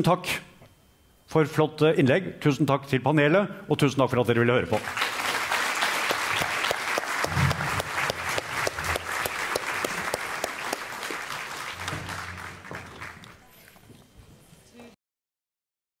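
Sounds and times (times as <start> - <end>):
audience applauding: 4.7 - 13.4.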